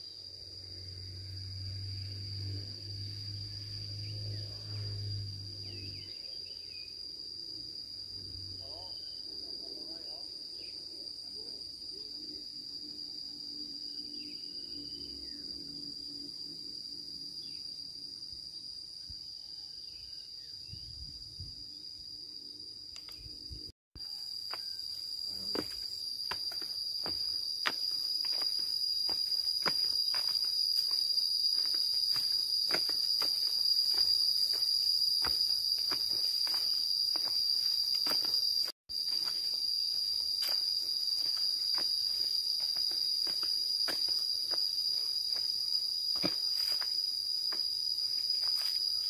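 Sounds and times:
insects calling high-pitched: 0.0s - 49.0s
footsteps on dirt path: 24.4s - 49.0s.

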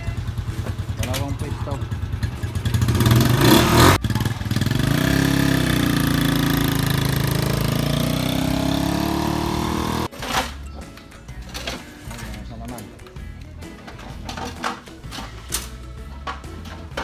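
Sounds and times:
motorcycle engine revving: 0.0s - 10.1s.

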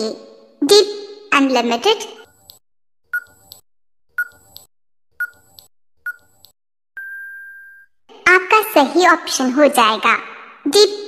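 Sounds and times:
timer ticks: 2.2s - 3.6s, 4.2s - 7.1s
high beep: 7.0s - 7.9s.

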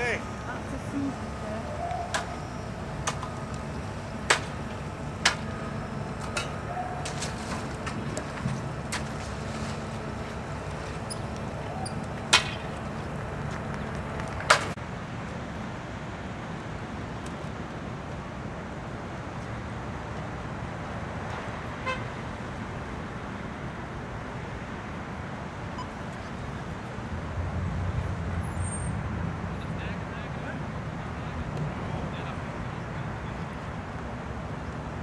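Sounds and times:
boat engine rumble: 0.0s - 20.8s.

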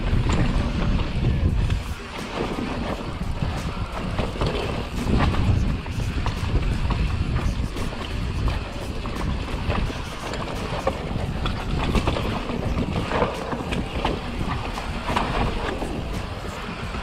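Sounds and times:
bike rattling over bumps: 0.0s - 17.0s
wind buffeting microphone: 0.0s - 17.0s.

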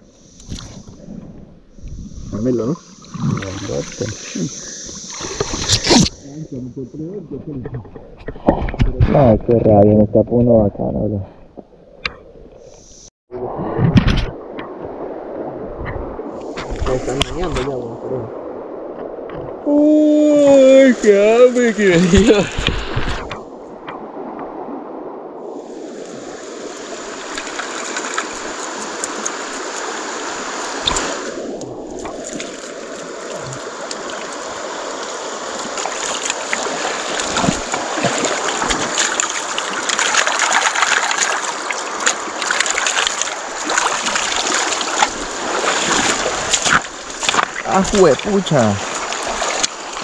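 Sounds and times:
river running over stones: 2.4s - 6.5s, 14.4s - 50.0s
hands splashing washing fish: 35.6s - 48.0s.

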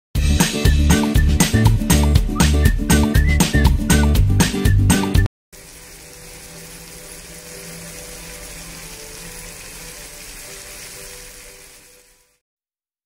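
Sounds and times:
food sizzling in hot oil: 5.6s - 12.4s.

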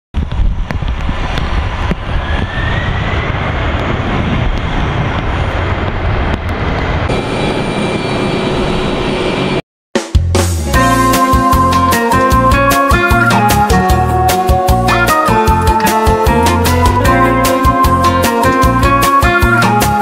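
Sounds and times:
jet engine roar: 0.2s - 9.6s
jet engine whine: 0.2s - 9.6s.

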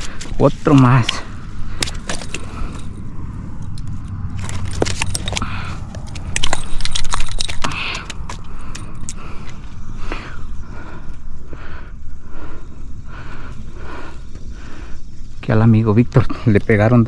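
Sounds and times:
pliers and metal lure clinking: 6.0s - 9.2s.

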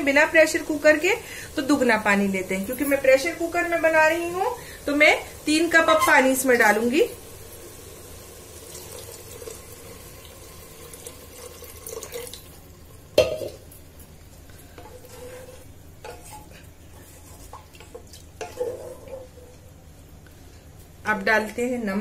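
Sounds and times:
water pouring into a pot: 6.6s - 13.2s
wooden spatula stirring in pot: 14.4s - 19.7s.

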